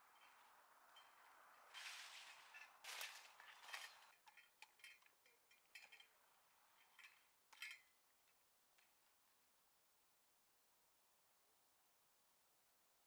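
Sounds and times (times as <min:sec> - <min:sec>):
rustling of undergrowth: 0:00.0 - 0:04.3.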